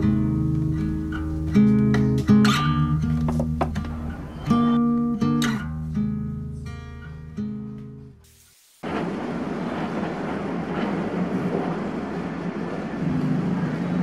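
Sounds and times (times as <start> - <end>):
acoustic guitar strumming chords: 0.0 - 8.2.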